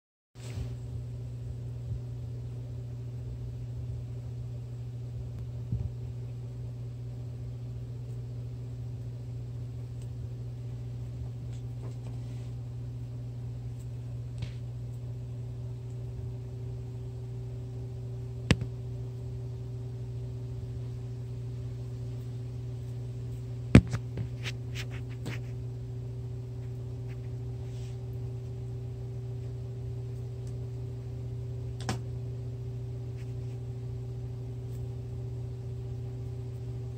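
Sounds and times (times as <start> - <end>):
low mechanical hum: 0.4 - 36.9.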